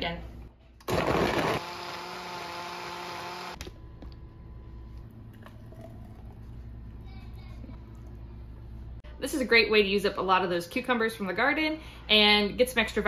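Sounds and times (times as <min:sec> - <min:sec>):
blender motor whining: 0:00.8 - 0:03.6.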